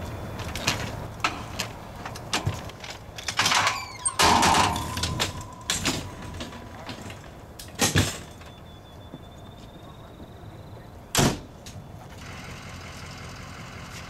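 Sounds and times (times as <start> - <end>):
stretcher clanking and rattling: 0.7 - 8.6.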